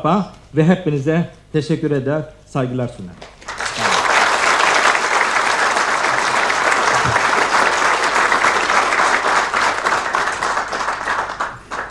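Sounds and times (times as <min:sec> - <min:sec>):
audience applauding: 0:03.2 - 0:11.9.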